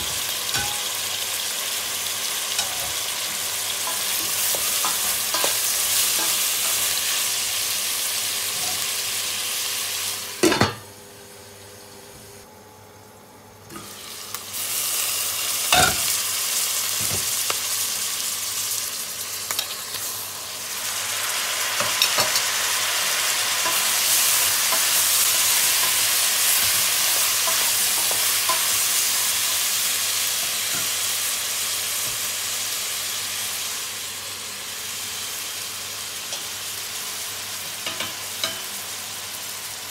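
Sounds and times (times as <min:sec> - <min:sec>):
meat and onions sizzling in oil: 0:00.0 - 0:12.3, 0:13.6 - 0:39.9.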